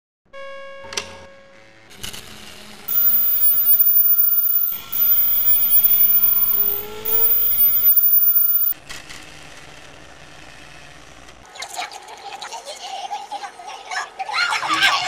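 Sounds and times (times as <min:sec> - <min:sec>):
loud mechanical whirring: 0:02.9 - 0:08.8
steady whine: 0:02.9 - 0:08.8.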